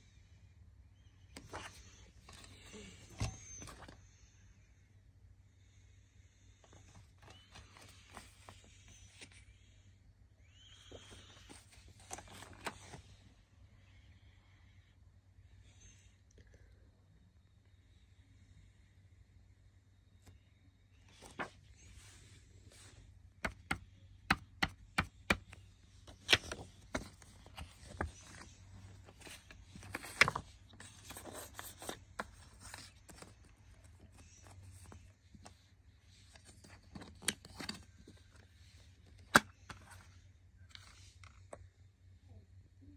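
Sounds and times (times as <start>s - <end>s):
paper booklet rustling: 1.3s - 4.1s, 6.6s - 9.7s, 10.7s - 13.2s, 21.0s - 23.8s, 24.5s - 41.6s
plastic cd case clicking shut: 39.2s - 39.9s.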